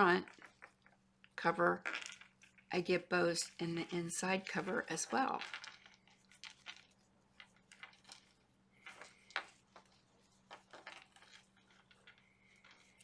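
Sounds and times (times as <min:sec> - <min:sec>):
ribbon rustling: 0:03.2 - 0:13.0.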